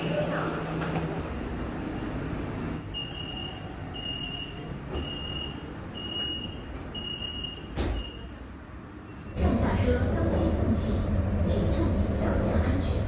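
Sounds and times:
train car hum: 0.0s - 13.0s
train door warning beeps: 2.8s - 8.4s
thump: 7.8s - 8.1s.

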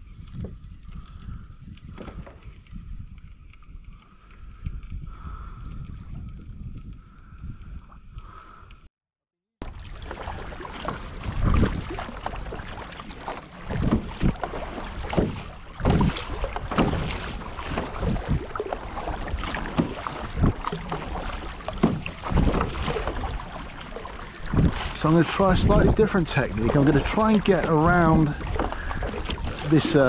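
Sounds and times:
wind gusting on microphone: 0.0s - 8.8s, 10.3s - 30.0s
paddle strokes: 9.6s - 30.0s
water slapping against hull: 9.6s - 30.0s.

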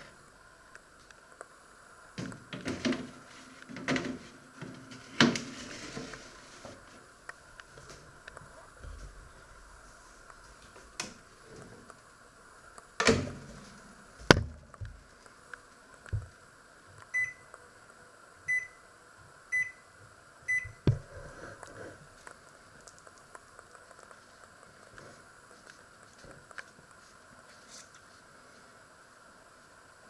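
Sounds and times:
microwave door shutting: 13.0s - 13.6s.

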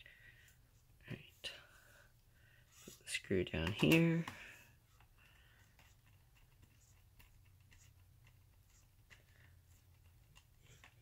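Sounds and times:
screwdriver ticking and scratching: 5.0s - 11.0s.

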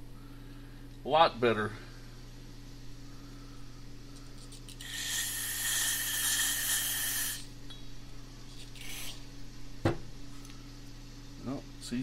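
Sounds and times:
compressed air hissing: 4.7s - 7.6s.

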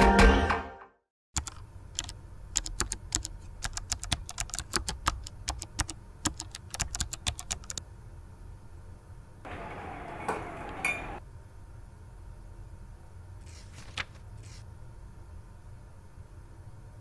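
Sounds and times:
typing on computer keyboard: 1.4s - 7.8s.

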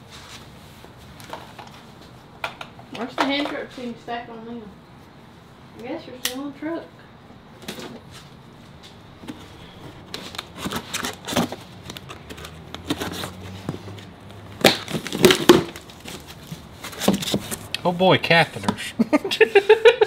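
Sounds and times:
cardboard boxes being handled: 9.2s - 17.7s.

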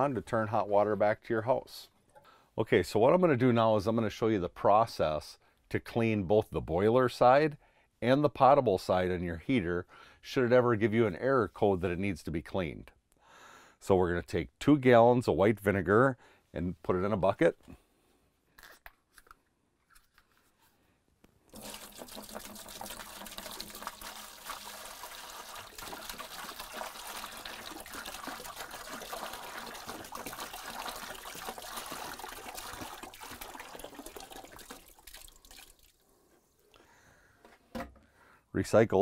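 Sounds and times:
liquid pouring into bucket: 21.5s - 36.0s.

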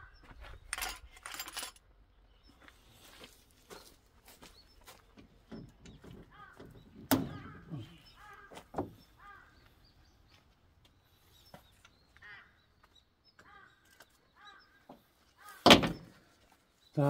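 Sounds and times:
birds cawing: 0.0s - 0.4s, 4.4s - 16.4s.

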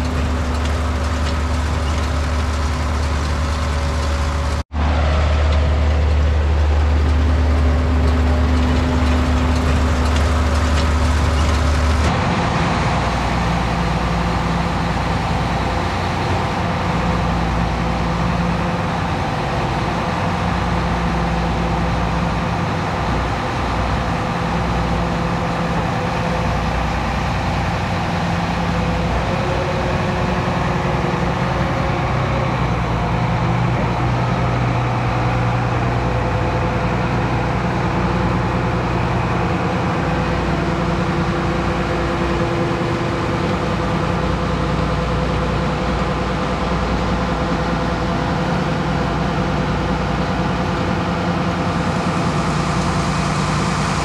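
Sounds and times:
diesel farm machinery running: 0.0s - 54.0s.

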